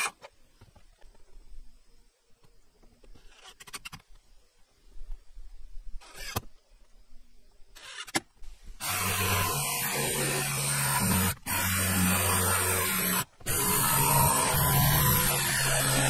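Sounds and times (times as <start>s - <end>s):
electric motor running: 8.8s - 16.0s.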